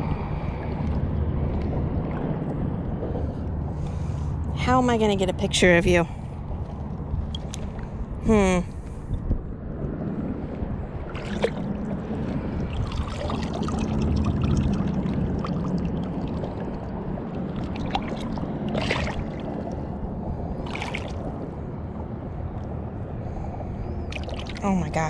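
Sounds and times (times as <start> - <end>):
water sloshing and lapping: 0.0 - 25.0
fish splashing: 11.1 - 19.9, 20.6 - 21.3, 24.1 - 24.7.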